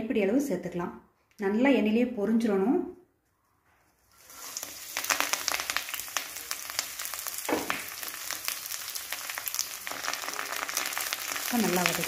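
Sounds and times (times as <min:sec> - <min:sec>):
leaves sizzling and popping in oil: 0:04.1 - 0:12.0.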